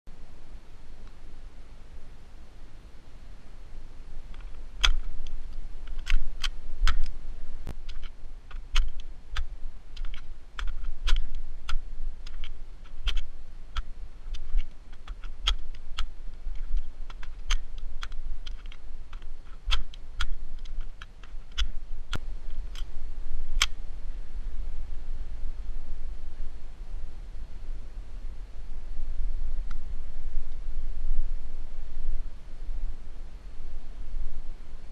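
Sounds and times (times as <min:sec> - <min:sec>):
low rumble: 0:00.1 - 0:34.9
plastic magazine clicks and clacks: 0:04.4 - 0:05.1, 0:07.9 - 0:21.7.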